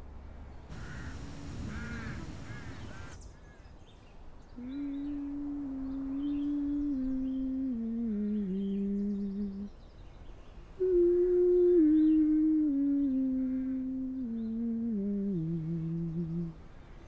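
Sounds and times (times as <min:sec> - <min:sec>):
woman humming: 0:04.6 - 0:09.7, 0:10.8 - 0:16.6.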